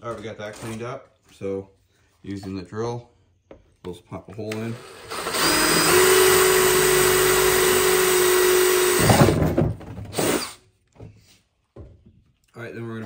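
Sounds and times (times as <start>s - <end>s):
power drill boring through plastic: 4.6s - 10.6s.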